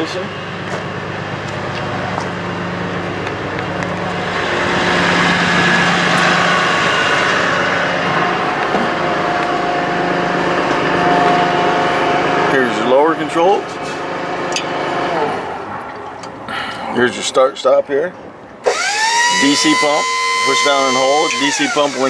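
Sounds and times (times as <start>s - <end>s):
diesel truck engine idling: 0.0s - 17.1s.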